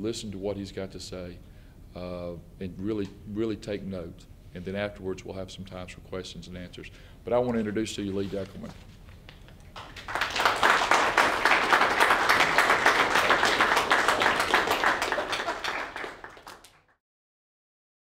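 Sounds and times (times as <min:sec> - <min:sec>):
audience applauding: 0:09.7 - 0:17.0.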